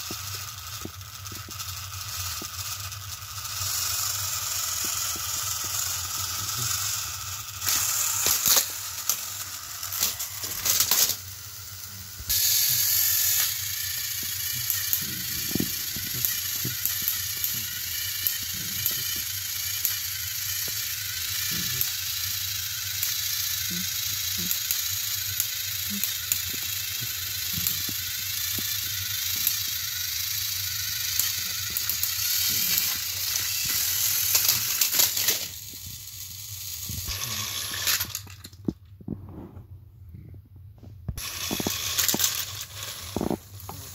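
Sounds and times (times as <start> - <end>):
toy trains clattering: 0.0 - 38.9, 41.2 - 43.9
toy train motors whirring: 0.0 - 39.0, 41.2 - 43.9.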